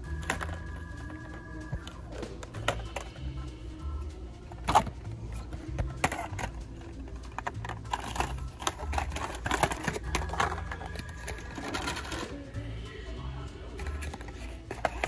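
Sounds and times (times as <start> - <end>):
plastic packages clacking: 4.6 - 12.5, 13.8 - 15.0.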